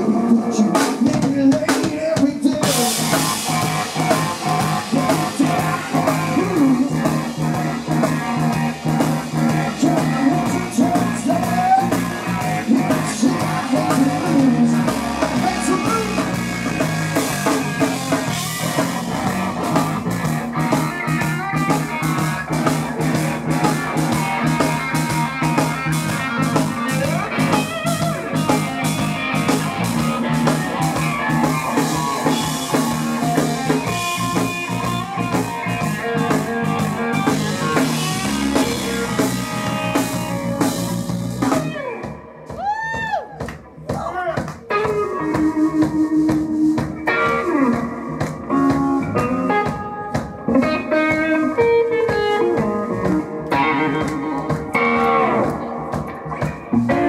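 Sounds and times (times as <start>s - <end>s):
bass guitar: 0.0s - 57.0s
drum kit: 0.0s - 57.0s
electric guitar bending notes: 2.6s - 42.7s, 44.6s - 57.0s.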